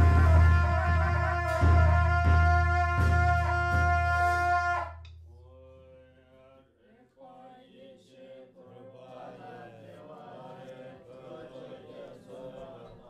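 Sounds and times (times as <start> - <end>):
group of voices chanting: 0.0 - 5.0, 5.6 - 13.0
loud horns: 0.0 - 5.0.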